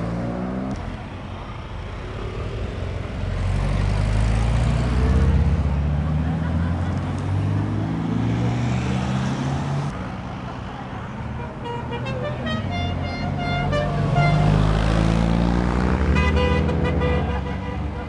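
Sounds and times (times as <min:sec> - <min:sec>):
cars driving past: 0:00.0 - 0:18.0
car horns tooting: 0:11.4 - 0:14.6, 0:16.0 - 0:18.0.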